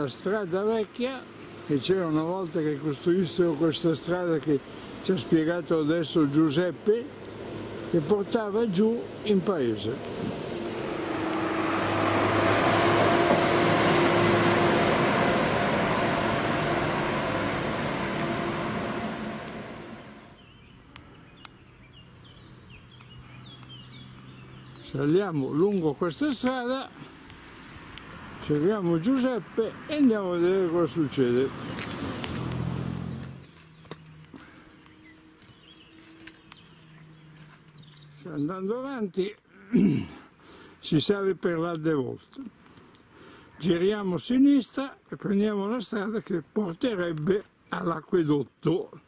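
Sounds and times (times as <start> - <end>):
tractor engine running: 6.7 - 20.4
low hum: 9.9 - 20.5
footsteps on stony track: 31.7 - 38.1.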